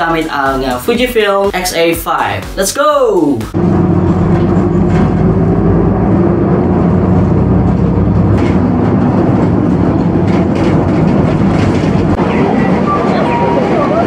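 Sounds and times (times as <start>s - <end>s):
bus engine hum: 3.5s - 14.0s.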